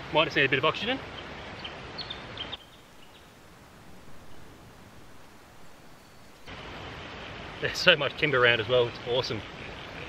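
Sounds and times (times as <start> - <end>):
steady hiss: 0.0 - 10.0
high bird chirps: 1.2 - 3.4, 5.6 - 6.5.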